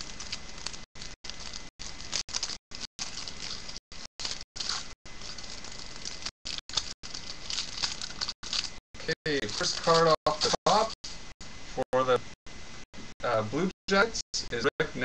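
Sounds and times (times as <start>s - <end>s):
wrapper being torn and crinkled: 0.0s - 8.8s, 9.4s - 10.6s.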